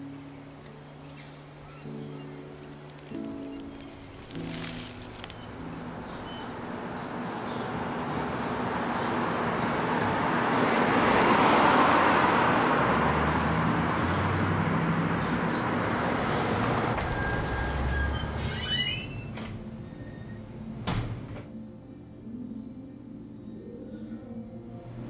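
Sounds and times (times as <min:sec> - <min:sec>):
low traffic rumble: 0:02.4 - 0:21.3
car passing by: 0:05.2 - 0:17.0
high ringing of opening door: 0:17.0 - 0:21.2.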